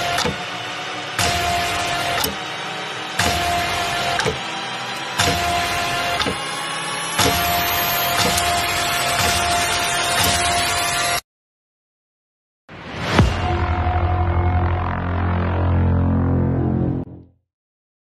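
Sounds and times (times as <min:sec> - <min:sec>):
sharp cinematic hits: 0:12.7 - 0:17.1
rising tone: 0:12.8 - 0:17.3.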